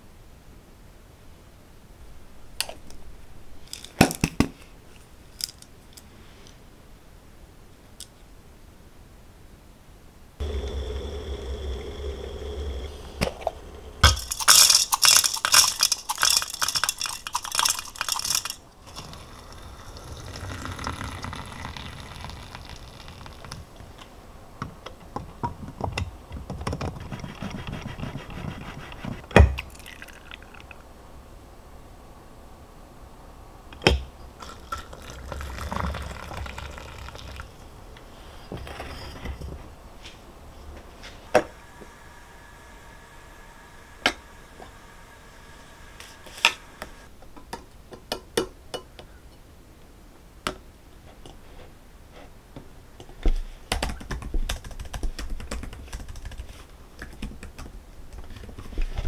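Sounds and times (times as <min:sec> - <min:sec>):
liquid pouring and splashing: 0:12.8 - 0:23.6, 0:29.6 - 0:30.8, 0:34.4 - 0:37.6.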